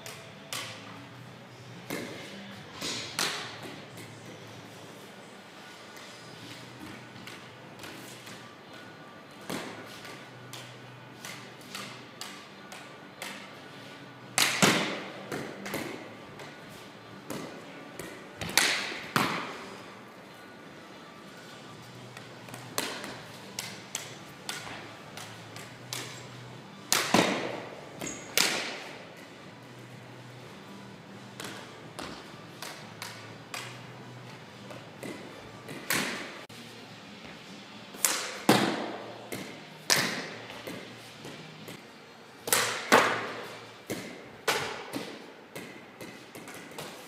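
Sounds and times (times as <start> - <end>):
stick hitting ball: 14.4 - 16.6, 17.2 - 19.6, 22.2 - 26.3, 26.9 - 29.0, 38.0 - 40.8, 42.5 - 47.0.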